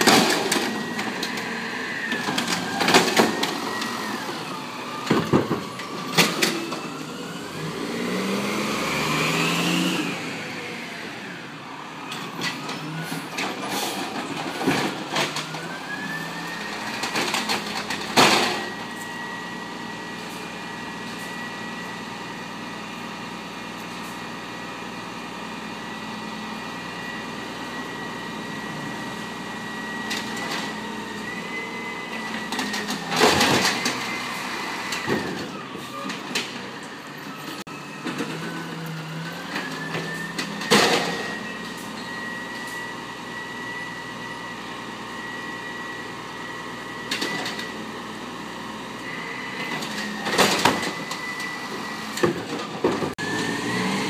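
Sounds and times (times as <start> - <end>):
truck engine revving: 7.1 - 10.9, 53.1 - 54.0
hydraulic whine: 25.8 - 54.0.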